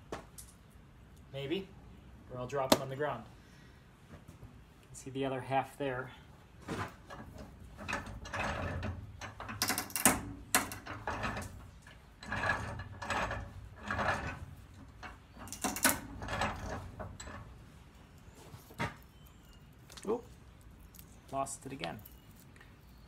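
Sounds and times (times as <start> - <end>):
vise screw clicking and creaking: 7.1 - 17.6.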